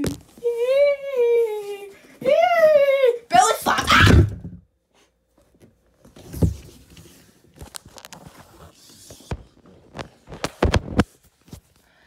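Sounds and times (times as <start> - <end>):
handling noise on phone microphone: 5.8 - 11.8.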